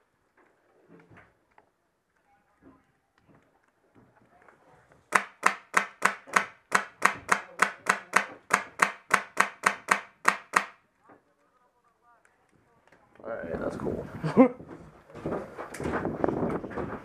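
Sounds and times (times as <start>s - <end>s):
airsoft rifle shots: 5.1s - 10.8s.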